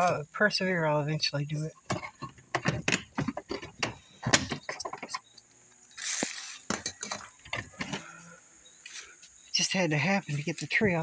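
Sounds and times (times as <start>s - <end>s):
metal window trim rattling: 1.8s - 5.2s.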